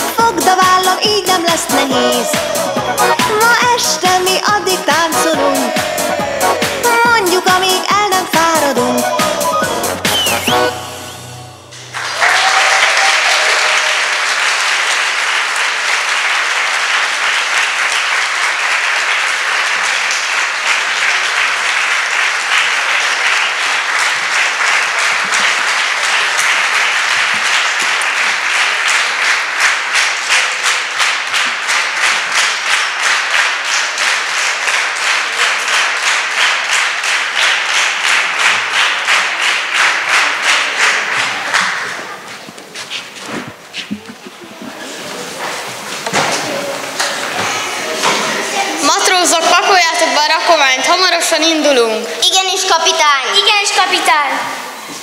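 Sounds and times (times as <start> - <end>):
audience applauding: 9.1 - 10.7, 11.7 - 51.3.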